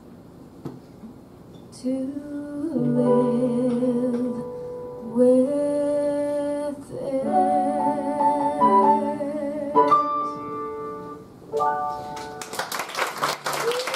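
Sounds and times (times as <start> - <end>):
woman singing with vibrato: 1.8 - 10.4.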